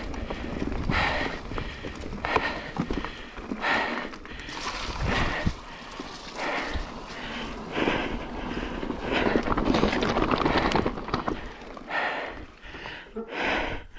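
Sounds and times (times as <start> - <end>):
tyres crunching over gravel: 0.0 - 12.6
wind buffeting microphone: 4.4 - 11.6.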